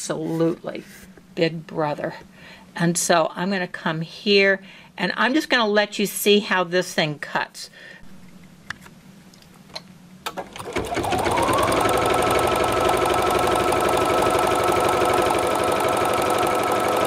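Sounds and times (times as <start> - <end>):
embroidery machine running: 10.5 - 17.0.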